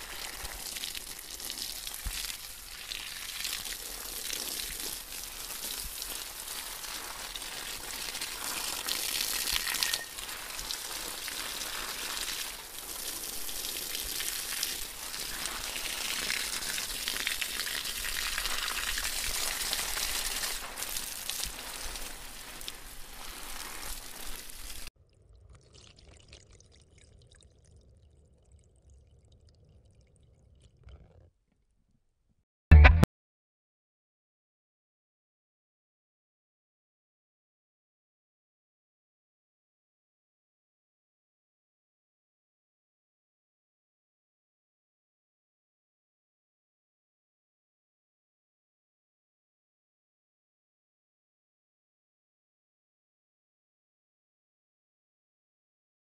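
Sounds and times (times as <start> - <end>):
water pouring into tub: 0.0 - 24.9
water spraying on stage light: 0.0 - 24.9.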